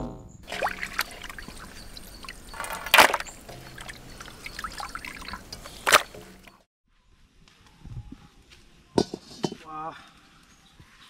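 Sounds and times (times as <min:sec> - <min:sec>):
liquid pouring and trickling: 0:00.4 - 0:06.6.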